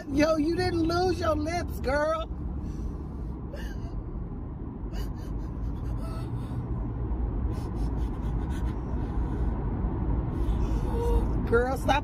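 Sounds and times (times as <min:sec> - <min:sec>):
car road rumble inside cabin: 0:00.0 - 0:12.0
young woman sobbing and gasping: 0:03.5 - 0:04.2, 0:04.8 - 0:06.7.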